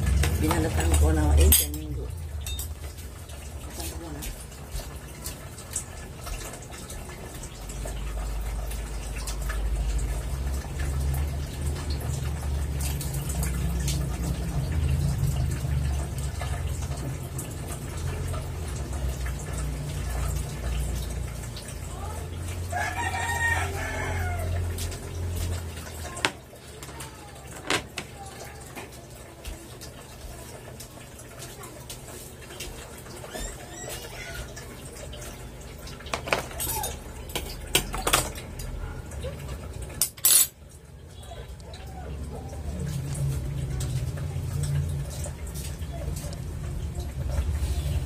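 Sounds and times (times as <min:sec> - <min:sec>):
rooster crowing: 0:22.7 - 0:24.7.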